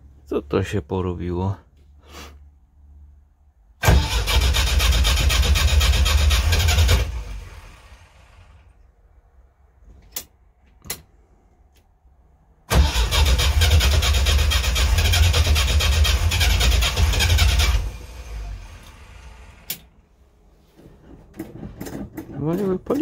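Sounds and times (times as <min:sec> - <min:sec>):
starter cranking engine: 0:03.8 - 0:08.1, 0:12.7 - 0:19.8.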